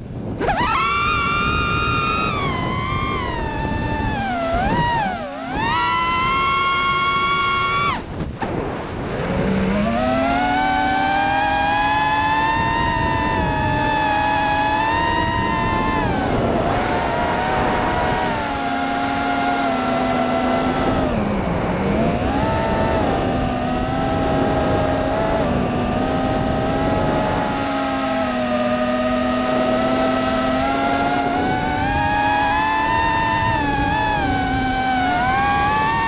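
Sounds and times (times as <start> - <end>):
drone motors whining: 0.2 - 36.0
rush of air noise: 7.9 - 9.9.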